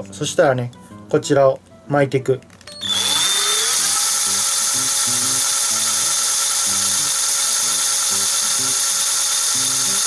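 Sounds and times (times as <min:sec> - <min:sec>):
cordless drill whining: 0:02.7 - 0:10.0.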